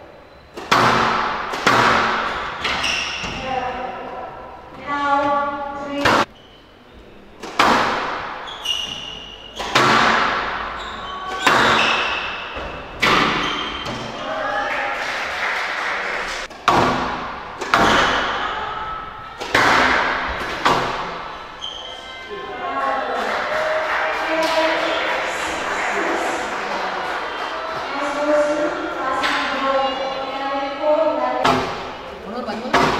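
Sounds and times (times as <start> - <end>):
squash ball hitting rackets and walls: 0.5 - 4.0, 5.8 - 6.3, 7.4 - 14.3, 16.4 - 21.8, 27.7 - 30.0, 31.4 - 32.9
shoe squeaks: 2.2 - 3.6, 6.2 - 7.4, 8.4 - 14.2, 17.8 - 19.5, 21.3 - 22.3.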